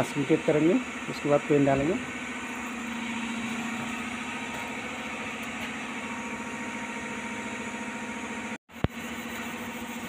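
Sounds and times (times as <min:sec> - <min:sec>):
machine hum with hiss: 0:00.0 - 0:10.0.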